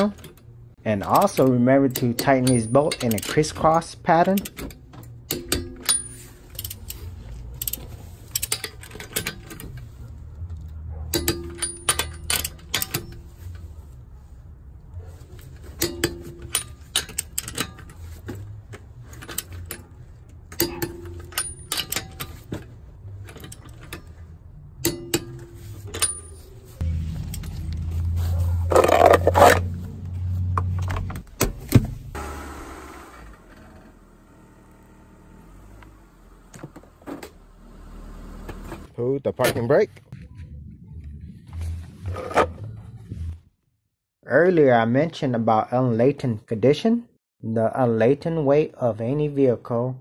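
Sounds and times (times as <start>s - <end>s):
wrench ratcheting and clicking: 5.3s - 9.5s.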